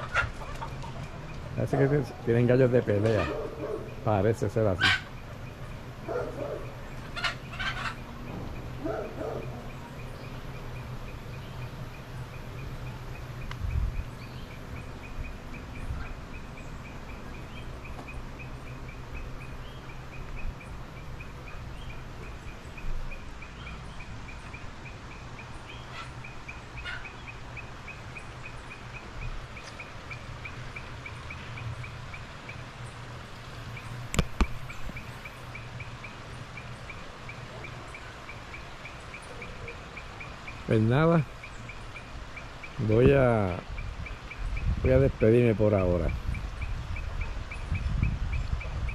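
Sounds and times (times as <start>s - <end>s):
chickens clucking: 0.0s - 31.4s.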